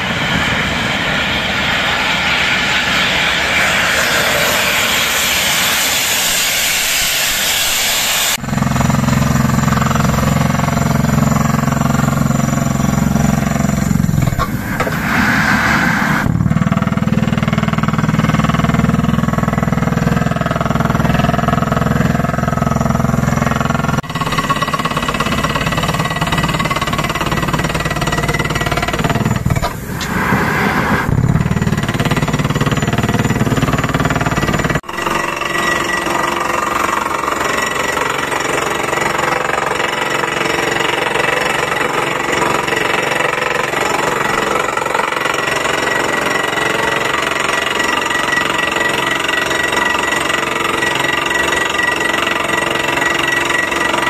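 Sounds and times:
low engine drone: 0:00.0 - 0:45.0
air hissing from borehole: 0:01.8 - 0:08.4, 0:11.9 - 0:16.4, 0:24.1 - 0:31.8.

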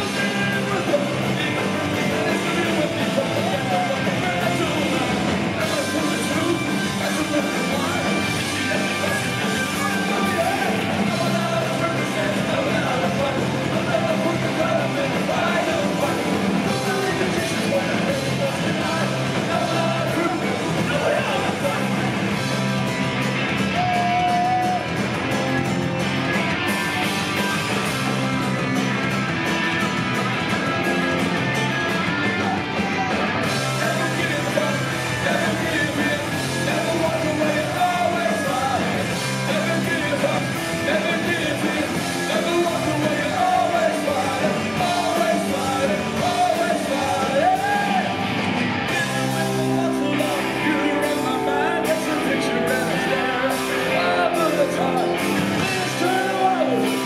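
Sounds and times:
singer's vocals: 0:00.0 - 0:22.5, 0:23.6 - 0:24.9, 0:32.3 - 0:57.0
punk rock band playing live: 0:00.0 - 0:57.0.

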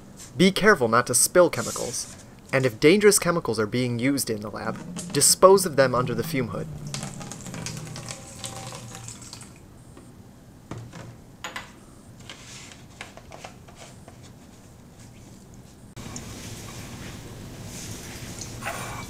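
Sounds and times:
liquid pouring into plastic jug: 0:06.1 - 0:09.6.

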